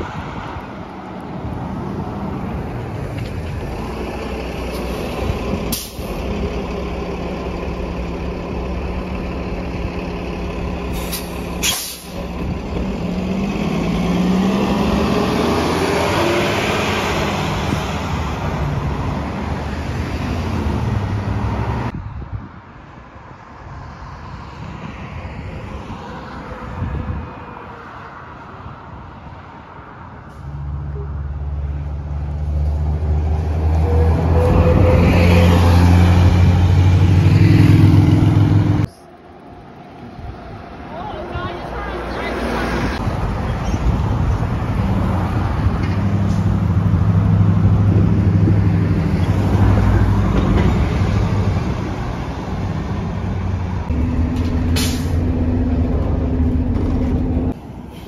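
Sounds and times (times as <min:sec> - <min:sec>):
distant traffic: 0:00.0 - 0:22.0, 0:22.6 - 0:58.0
bus engine revving: 0:01.9 - 0:21.9, 0:30.3 - 0:39.0, 0:41.8 - 0:58.0
bus engine idling: 0:02.4 - 0:13.1
bus air brake hiss: 0:05.7 - 0:06.2, 0:10.9 - 0:12.2, 0:54.8 - 0:55.2.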